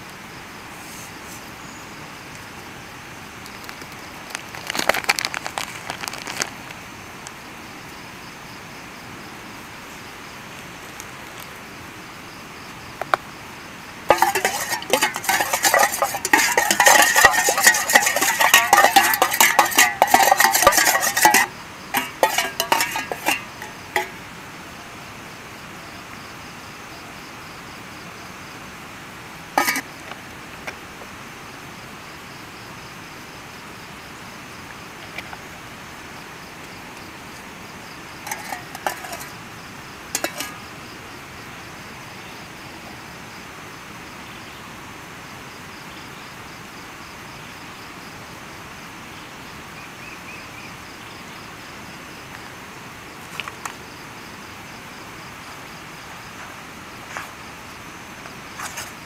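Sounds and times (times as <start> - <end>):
utensils clinking against pan: 14.1 - 24.2, 29.6 - 29.9, 38.2 - 39.4, 40.1 - 40.6.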